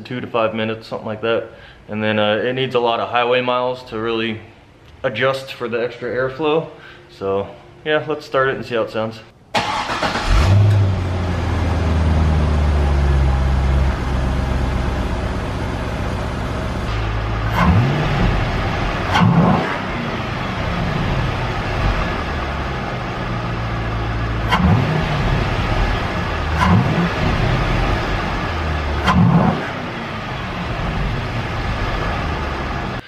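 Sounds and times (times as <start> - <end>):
car engine high idle: 9.6 - 19.2, 19.8 - 33.0
car engine revving: 9.6 - 33.0.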